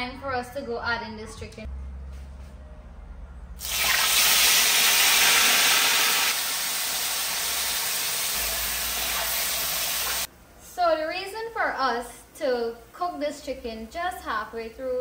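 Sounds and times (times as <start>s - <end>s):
chicken sizzling in hot oil: 3.6s - 10.3s.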